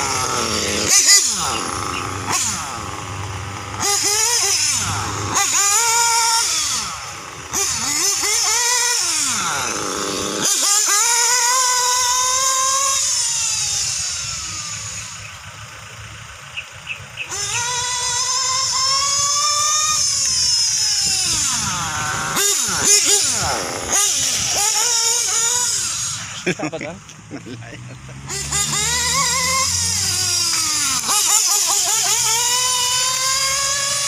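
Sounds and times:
rc car motor revving: 0:00.0 - 0:34.0.

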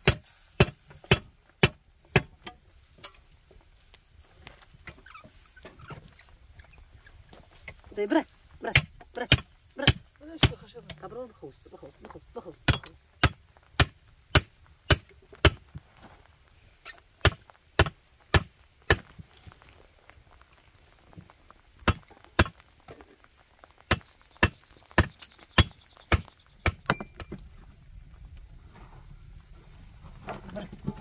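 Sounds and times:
hand tool chopping hard material: 0:00.0 - 0:02.5, 0:08.6 - 0:10.6, 0:12.6 - 0:15.6, 0:17.2 - 0:19.1, 0:23.9 - 0:27.2.

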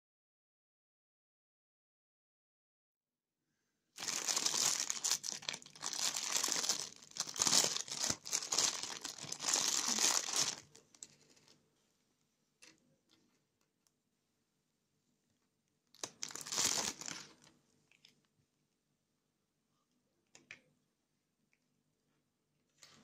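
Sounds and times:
plastic bag crinkling: 0:04.0 - 0:11.6, 0:16.0 - 0:18.1.

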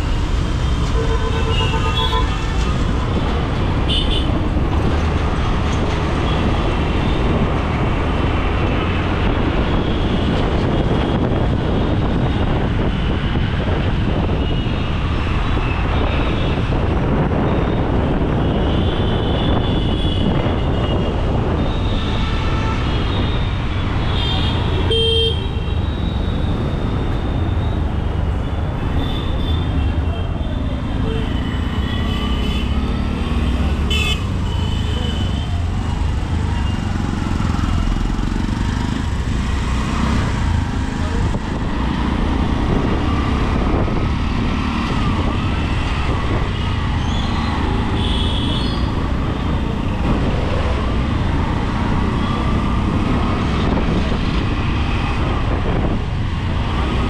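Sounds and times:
road traffic noise: 0:00.0 - 0:57.0
vehicle horns honking: 0:01.0 - 0:02.5.

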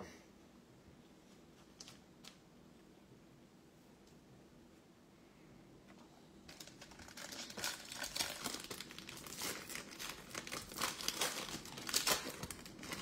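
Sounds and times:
plastic wrapper crinkling and tearing: 0:06.5 - 0:13.0.

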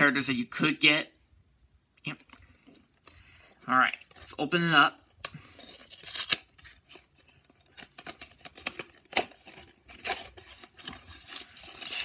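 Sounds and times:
plastic wrap crinkling and tearing: 0:05.4 - 0:12.0.

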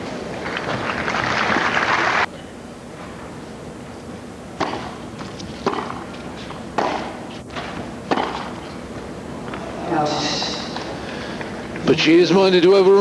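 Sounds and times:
tennis ball struck by racquets: 0:04.6 - 0:08.6.

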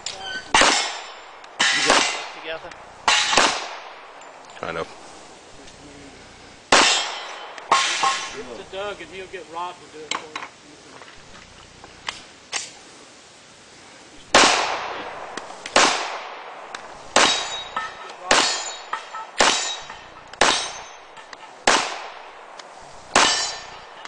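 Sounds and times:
steel plate ringing clang: 0:00.0 - 0:04.4, 0:06.7 - 0:08.8, 0:17.2 - 0:22.5, 0:23.1 - 0:24.0
pistol shots: 0:00.5 - 0:04.3, 0:06.7 - 0:08.4, 0:14.3 - 0:24.0.

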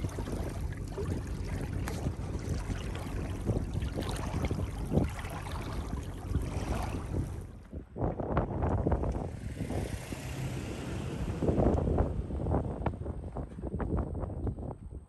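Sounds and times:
wavelets lapping on shore: 0:00.0 - 0:07.7
wind buffeting microphone: 0:00.0 - 0:15.0.

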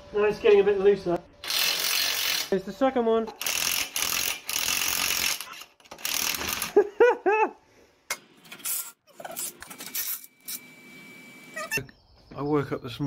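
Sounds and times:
short squeaks: 0:11.5 - 0:11.9.

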